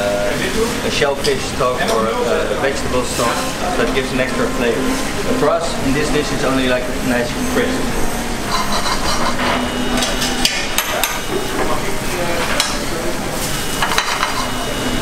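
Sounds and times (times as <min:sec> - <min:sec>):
vegetable sizzling in a frying pan: 0:11.3 - 0:15.0.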